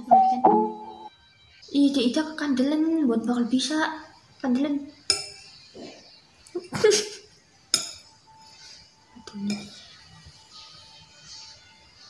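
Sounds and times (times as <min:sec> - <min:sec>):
metal spoon clinking against dish: 0:05.0 - 0:05.6, 0:07.7 - 0:08.2, 0:09.4 - 0:09.9.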